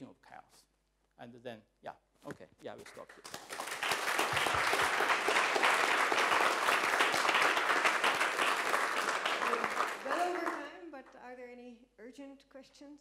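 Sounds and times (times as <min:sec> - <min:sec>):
audience applauding: 0:03.2 - 0:10.8.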